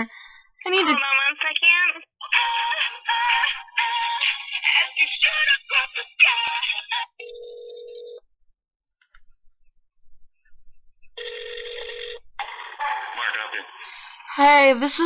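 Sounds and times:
telephone ringback tone: 0:07.2 - 0:08.2, 0:11.2 - 0:12.2.

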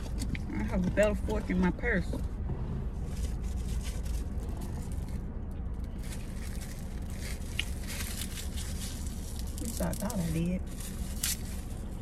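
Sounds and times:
low rumble inside car: 0:00.0 - 0:12.0
rustling in a purse: 0:06.0 - 0:12.0.

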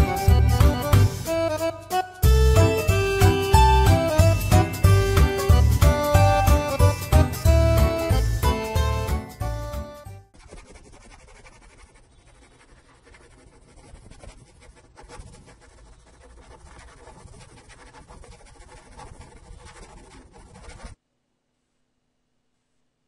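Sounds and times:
marker pen scratching: 0:10.3 - 0:21.0.

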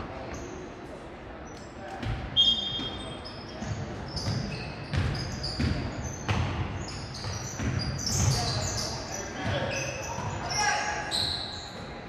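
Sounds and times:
sneakers squeaking: 0:00.0 - 0:12.0
basketball bouncing on wooden floor: 0:04.2 - 0:08.5.

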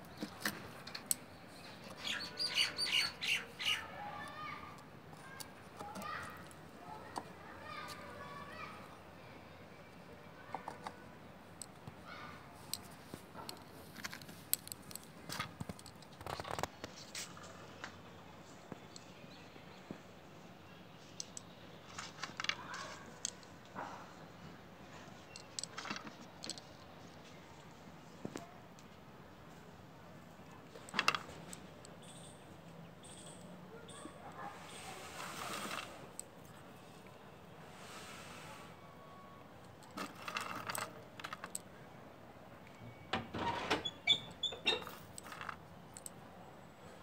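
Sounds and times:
wooden twigs rustling in soil: 0:11.5 - 0:18.6, 0:21.1 - 0:23.7, 0:34.6 - 0:37.1
pebbles clicking: 0:39.8 - 0:41.7, 0:44.9 - 0:46.1.

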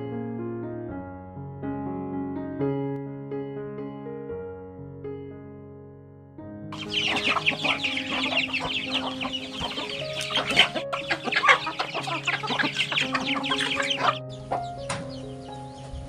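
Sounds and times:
background music: 0:06.2 - 0:16.0
chickens clucking: 0:06.8 - 0:16.0
chicks peeping: 0:06.8 - 0:16.0.

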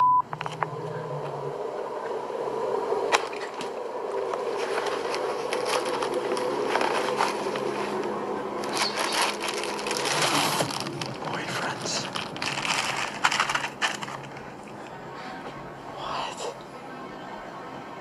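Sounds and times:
steady hum: 0:00.0 - 0:18.0
rustling in a handbag: 0:04.4 - 0:14.8.

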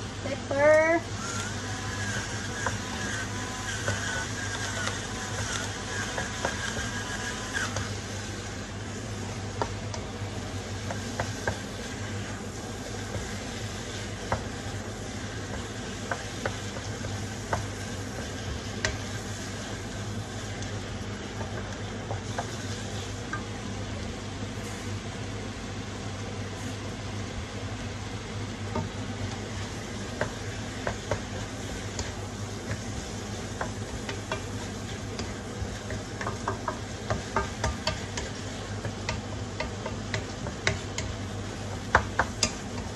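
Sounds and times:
meat and onion sizzling: 0:00.0 - 0:42.9
steady low hum: 0:00.0 - 0:42.9
spatula tapping and scraping pan: 0:01.9 - 0:08.0, 0:09.5 - 0:23.5, 0:28.7 - 0:42.9.

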